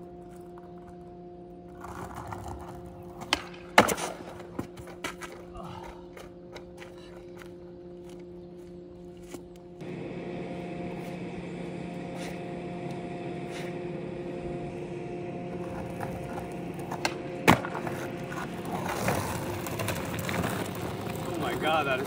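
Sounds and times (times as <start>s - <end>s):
skateboard wheels rolling on concrete: 0.0s - 22.0s
skateboard clack: 1.8s - 5.4s, 15.5s - 22.0s.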